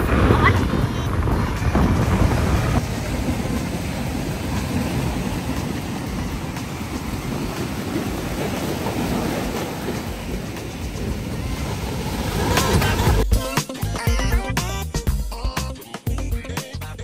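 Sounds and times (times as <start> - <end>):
wind buffeting microphone: 0.0 - 13.2
road noise: 0.0 - 13.3.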